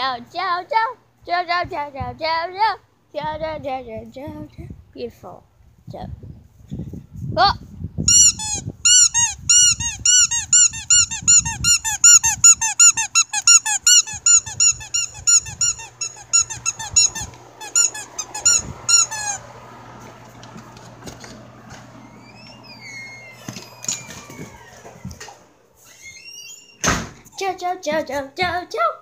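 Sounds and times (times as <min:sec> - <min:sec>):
squeaky dog toy squeaking: 0:08.1 - 0:19.4.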